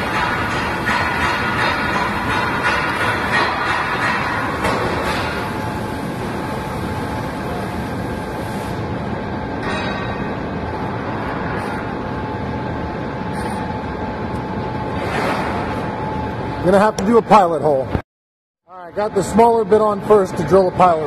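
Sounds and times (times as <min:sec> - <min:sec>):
machine rushing noise: 0:10.2 - 0:16.7.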